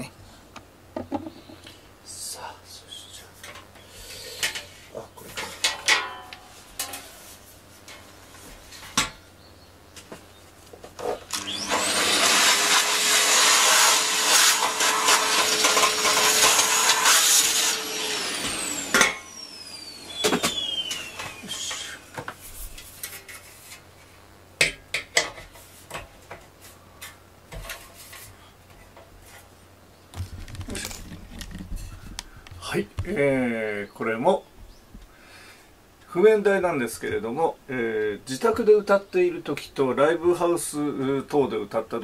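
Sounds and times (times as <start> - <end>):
vacuum cleaner running: 11.1 - 22.4.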